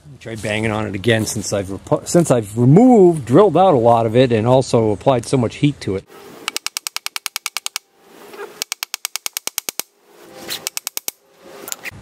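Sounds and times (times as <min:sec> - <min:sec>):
rapid metal-on-metal hammering: 0:06.5 - 0:07.9, 0:08.6 - 0:09.9, 0:10.7 - 0:11.2.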